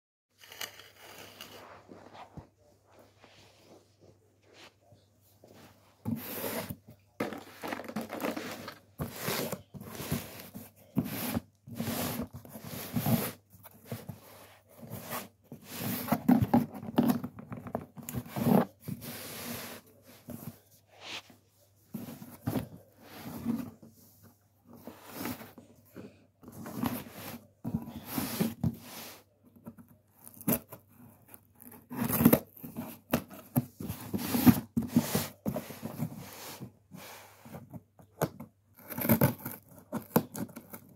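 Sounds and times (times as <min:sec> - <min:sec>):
cardboard box scraping and tearing: 0:07.6 - 0:17.2.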